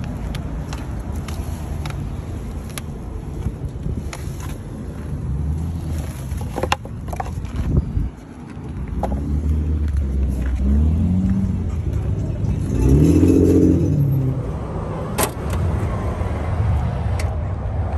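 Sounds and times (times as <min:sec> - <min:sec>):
car engine revving: 0:09.0 - 0:16.7.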